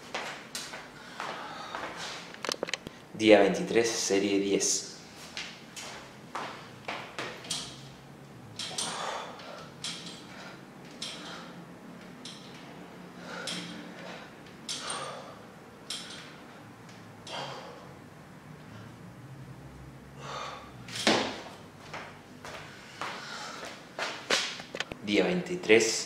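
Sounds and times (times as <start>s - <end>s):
man breathing hard: 0.9s - 2.3s, 8.8s - 11.7s, 13.1s - 16.3s, 17.2s - 18.0s, 20.1s - 20.9s, 22.5s - 23.9s.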